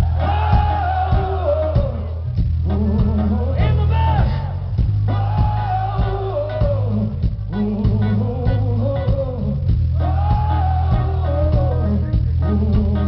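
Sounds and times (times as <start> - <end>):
drum hits: 0.0 - 3.8
electric guitar: 0.0 - 13.0
heavy bass: 0.0 - 13.0
singer holding long notes: 0.0 - 13.0.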